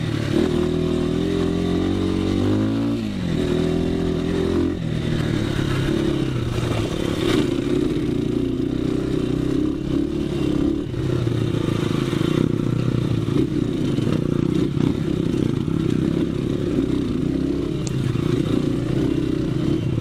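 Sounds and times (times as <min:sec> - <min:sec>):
dirt bike engine running: 0:00.0 - 0:20.0.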